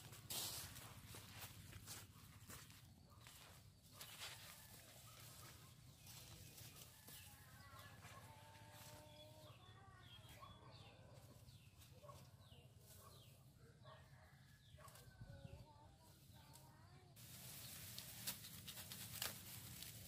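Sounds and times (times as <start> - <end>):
sharp crackles of leaves: 0.0 - 2.0, 17.2 - 20.0
leaves rustling: 0.0 - 2.7, 17.2 - 20.0
faint chicken calls: 0.3 - 16.8.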